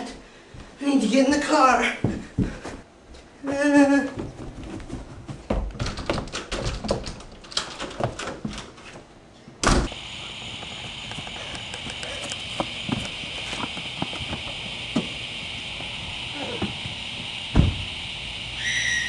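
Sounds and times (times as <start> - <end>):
footsteps on carpeted stairs: 0.0 - 0.8, 1.9 - 9.1, 10.4 - 15.2
high-pitched outdoor hum: 9.6 - 19.0
loud sharp knock: 17.5 - 17.8.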